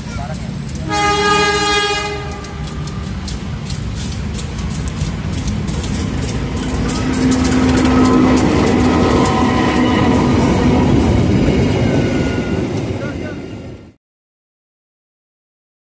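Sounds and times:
wheels ticking over rail joints: 0:00.0 - 0:12.0
wheels on rails: 0:00.0 - 0:13.6
diesel locomotive engine: 0:00.0 - 0:14.0.

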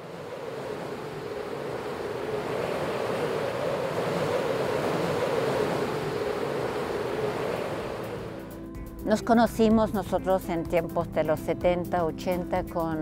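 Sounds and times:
steady rushing noise: 0:00.0 - 0:08.7.

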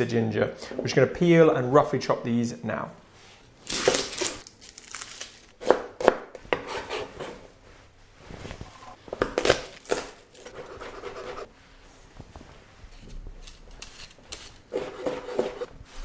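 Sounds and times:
onion skin rustling: 0:03.6 - 0:05.6
knife chopping on cutting board: 0:05.6 - 0:07.4, 0:14.7 - 0:15.7.

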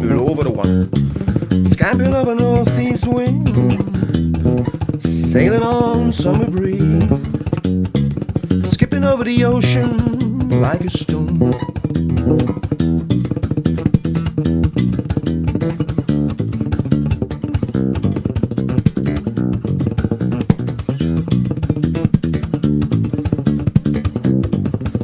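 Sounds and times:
electric bass plucked run: 0:00.0 - 0:25.0
person singing: 0:01.6 - 0:07.5, 0:08.6 - 0:11.9.

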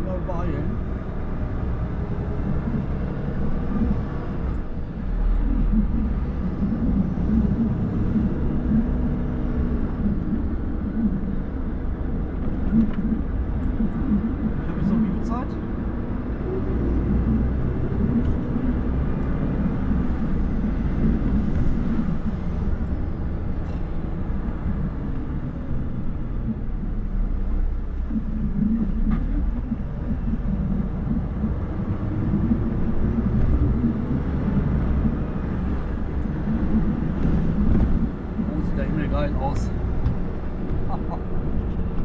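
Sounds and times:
truck engine rumbling: 0:00.0 - 0:42.0.

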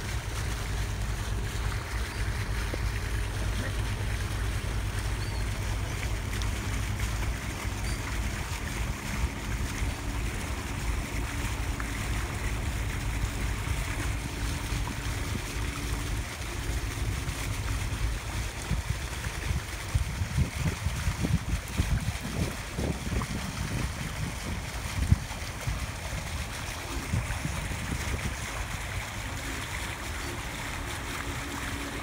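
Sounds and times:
boat engine droning: 0:00.0 - 0:32.0
water washing past hull: 0:00.0 - 0:32.0
wind on microphone: 0:17.8 - 0:31.7.

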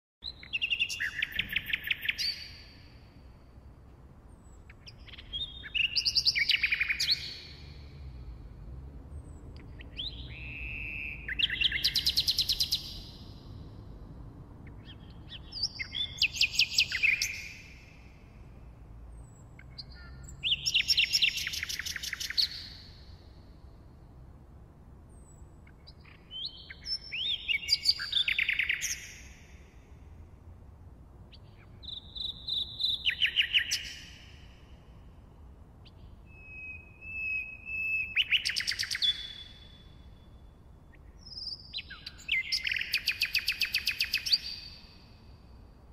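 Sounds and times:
nightingale singing: 0:00.2 - 0:03.6, 0:04.3 - 0:08.3, 0:09.2 - 0:13.6, 0:14.6 - 0:18.5, 0:19.1 - 0:24.2, 0:25.1 - 0:29.9, 0:31.3 - 0:45.9.

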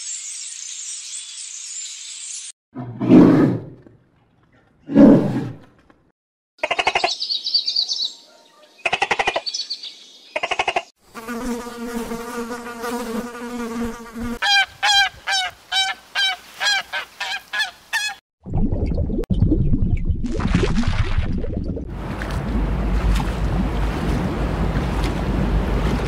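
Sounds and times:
low animal growl: 0:02.8 - 0:05.7
insect buzzing: 0:11.0 - 0:14.4
goose honking: 0:14.4 - 0:18.2.

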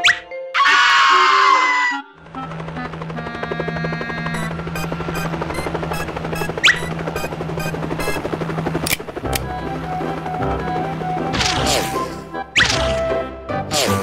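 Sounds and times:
background music: 0:00.0 - 0:14.0
cartoon helicopter rotor chopping: 0:01.5 - 0:14.0
sharp clicks: 0:08.8 - 0:09.5.

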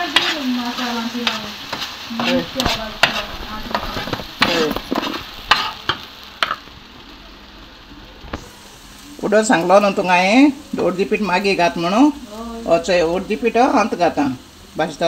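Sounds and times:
metal spoon scraping a pan: 0:00.0 - 0:06.6
paste sizzling in hot oil: 0:00.0 - 0:15.0.

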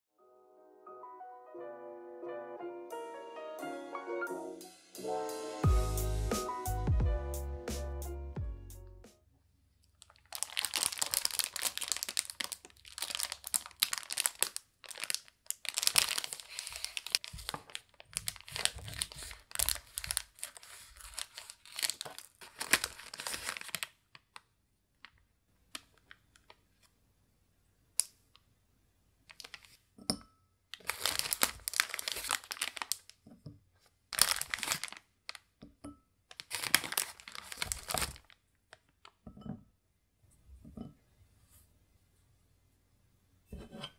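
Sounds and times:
plastic bag tearing and crinkling: 0:10.0 - 0:24.0, 0:29.3 - 0:29.8, 0:30.7 - 0:33.1, 0:34.1 - 0:35.4, 0:36.3 - 0:38.4.

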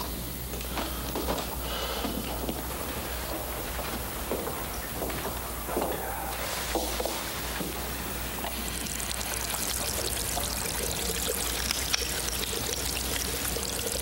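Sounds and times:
running water pouring: 0:08.3 - 0:14.0.

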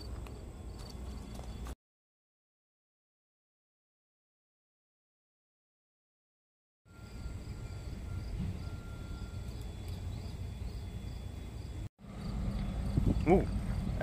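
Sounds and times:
insects chirping: 0:00.0 - 0:01.8, 0:06.9 - 0:14.0
diesel locomotive rumble: 0:06.9 - 0:14.0.

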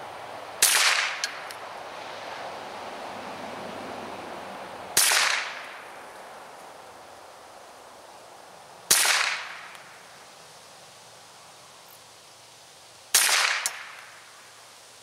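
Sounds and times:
rifle shots: 0:00.6 - 0:01.4, 0:05.0 - 0:05.8, 0:08.9 - 0:09.7, 0:13.1 - 0:14.1.

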